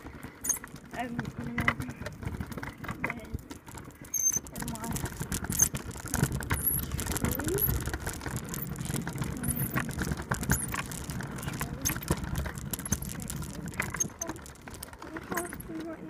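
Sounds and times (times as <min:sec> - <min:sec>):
scooter wheels rumbling on pavement: 0:00.0 - 0:16.0
small rattles and clicks: 0:00.0 - 0:16.0.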